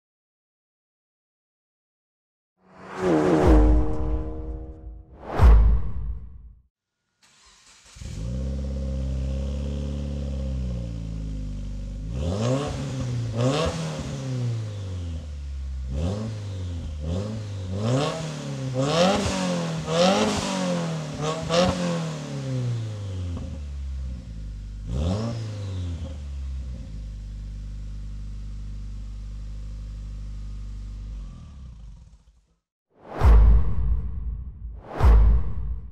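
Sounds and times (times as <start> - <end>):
car engine idling and revving: 2.8 - 5.0, 7.2 - 32.6.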